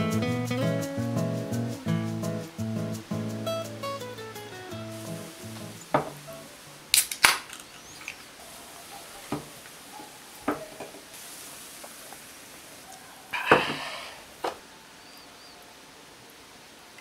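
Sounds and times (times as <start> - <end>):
beer foam fizzing: 4.7 - 14.6
can and glass knocking on wood: 5.9 - 6.2.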